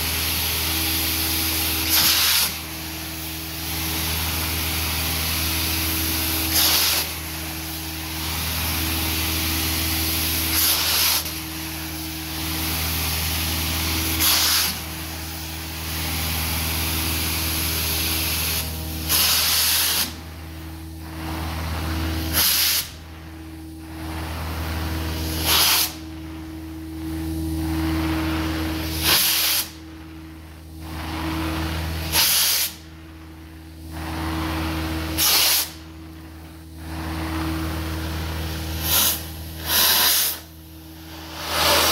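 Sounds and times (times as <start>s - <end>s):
carpet extractor running: 0.0s - 41.9s.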